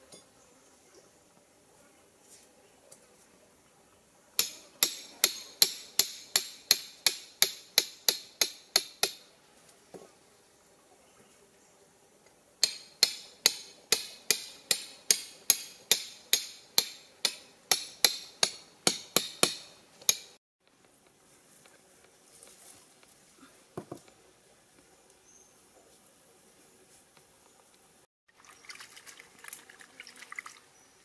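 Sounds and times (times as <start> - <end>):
hammering metal on metal: 4.4 - 9.2, 12.6 - 20.4.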